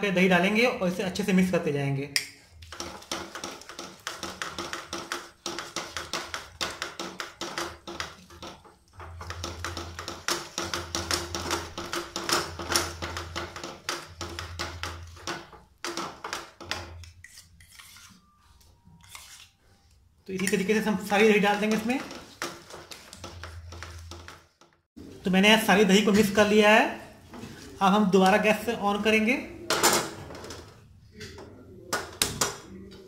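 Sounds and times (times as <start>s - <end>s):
spatula scraping frying pan: 2.5s - 19.7s, 20.4s - 24.6s.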